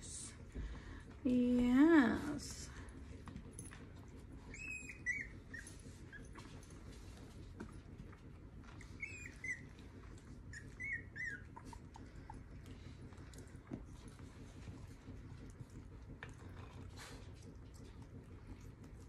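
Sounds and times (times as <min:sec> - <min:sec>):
puppy whimpering squeaks: 0:04.5 - 0:06.5, 0:08.9 - 0:09.7, 0:10.5 - 0:11.9.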